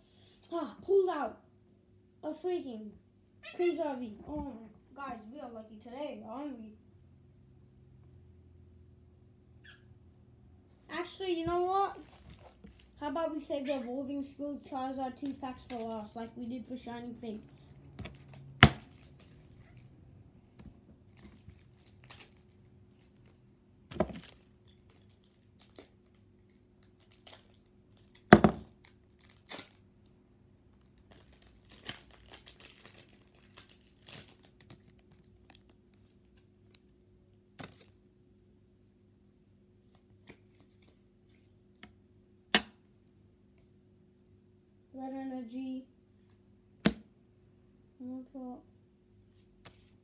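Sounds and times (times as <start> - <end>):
foil wrapper tearing and crinkling: 12.0 - 13.0, 21.1 - 23.4, 24.1 - 29.9, 30.7 - 36.8.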